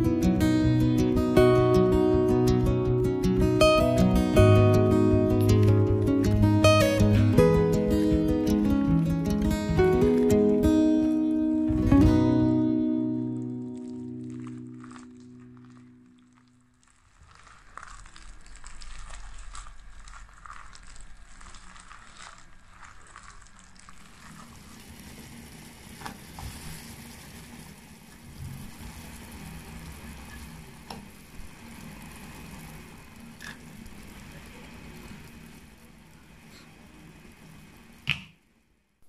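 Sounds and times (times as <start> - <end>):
water simmering in a pot: 0.0 - 39.0
hand kneading and slapping paste: 13.4 - 24.4.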